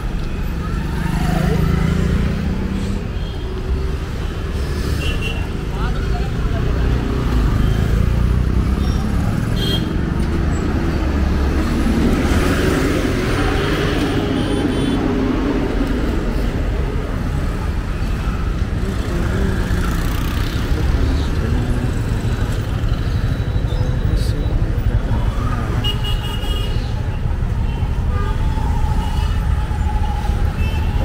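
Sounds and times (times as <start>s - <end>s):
traffic passing by: 0.0s - 31.0s.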